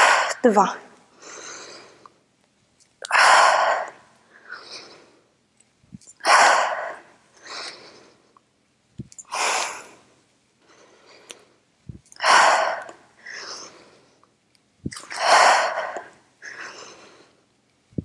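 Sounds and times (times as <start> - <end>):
woman exhaling forcefully: 3.1 - 3.9, 6.2 - 7.1, 12.2 - 12.9, 14.9 - 16.6
woman breathing in: 15.0 - 17.4.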